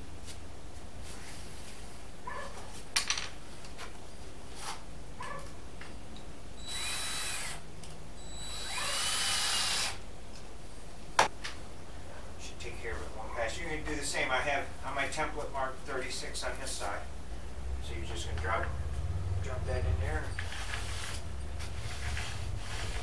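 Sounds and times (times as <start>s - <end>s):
cordless drill whining: 6.6s - 7.6s, 8.2s - 10.0s.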